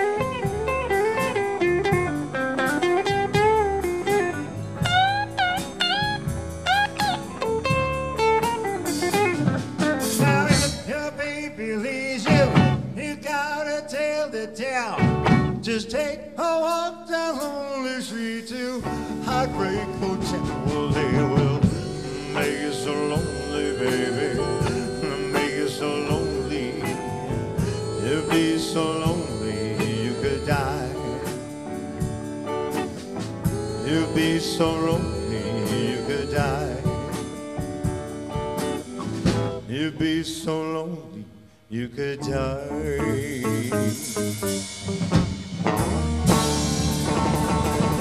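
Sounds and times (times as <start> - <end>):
rock band playing: 0.0 - 11.3, 12.2 - 13.0, 15.0 - 15.7, 18.8 - 40.0, 42.9 - 48.0.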